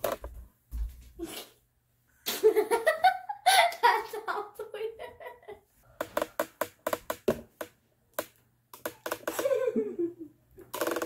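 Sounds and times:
young girl laughing: 0:02.3 - 0:05.7, 0:09.3 - 0:10.4.

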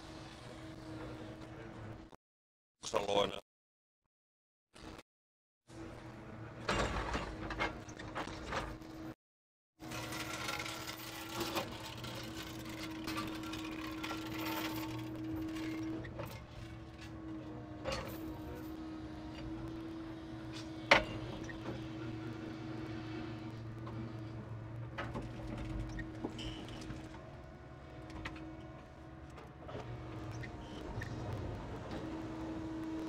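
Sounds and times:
engine and hydraulic pump hum: 0:14.9 - 0:33.0.

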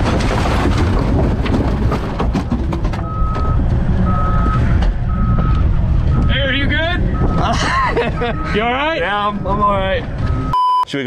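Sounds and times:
knocks and clatter: 0:00.0 - 0:03.8
vehicle reversing alarm beeping: 0:03.0 - 0:10.9.

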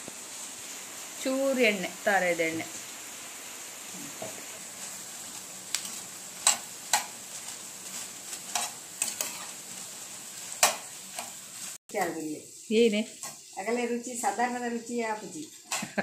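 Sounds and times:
chillies sizzling in oil: 0:00.0 - 0:16.0
steel spoon scraping a pan: 0:04.8 - 0:11.8.

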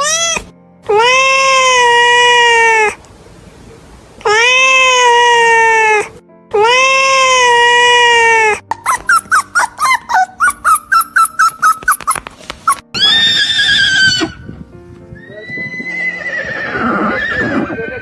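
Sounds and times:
cat meowing: 0:00.0 - 0:03.0, 0:04.2 - 0:08.6, 0:09.2 - 0:14.4
horse whinnying: 0:08.9 - 0:14.5, 0:15.2 - 0:18.0.

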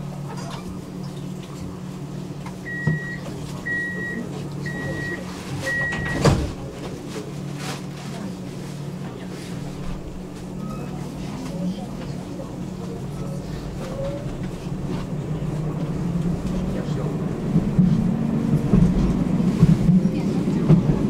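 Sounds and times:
tram electrical hum: 0:00.0 - 0:21.0
tram doors shutting thud: 0:04.7 - 0:07.0.

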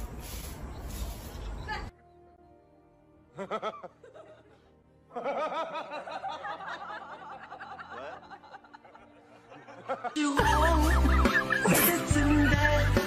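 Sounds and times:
faint background music: 0:01.0 - 0:13.0
people laughing: 0:03.3 - 0:12.8.

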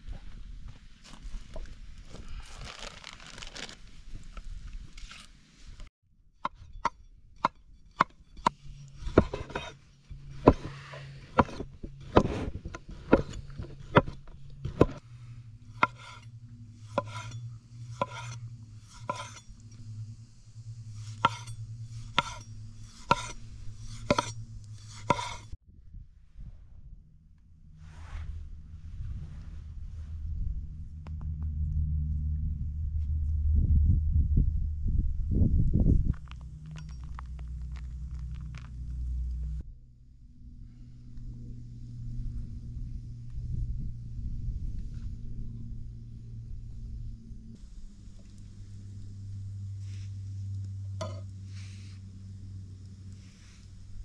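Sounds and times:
rustling: 0:00.8 - 0:05.9
low steady hum: 0:06.4 - 0:54.0.

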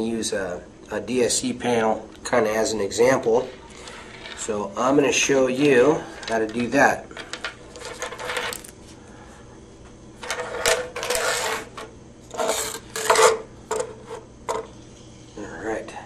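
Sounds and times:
plastic parts clattering: 0:06.1 - 0:08.7.

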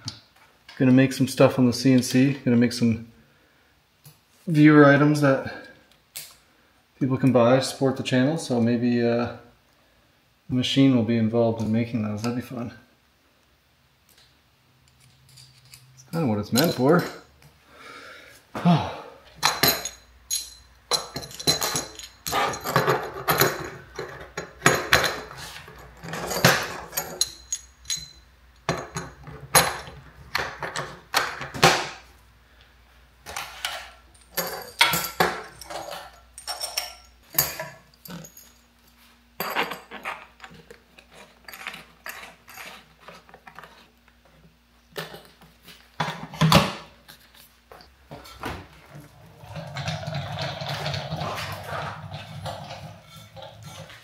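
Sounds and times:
metal fittings clinking and rattling: 0:14.9 - 0:17.3, 0:19.4 - 0:29.9, 0:33.3 - 0:38.7, 0:39.4 - 0:43.8.

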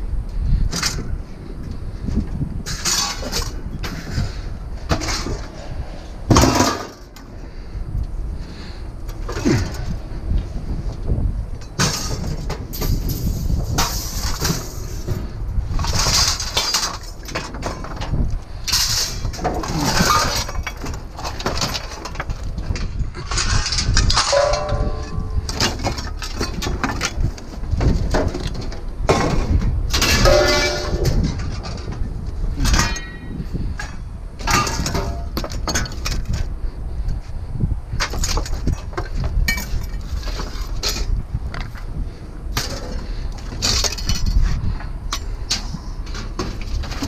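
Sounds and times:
scrap metal clanking: 0:02.6 - 0:07.3, 0:08.5 - 0:10.0, 0:11.6 - 0:36.5, 0:38.0 - 0:41.8, 0:42.5 - 0:47.0
short metallic rings: 0:24.2 - 0:25.4.

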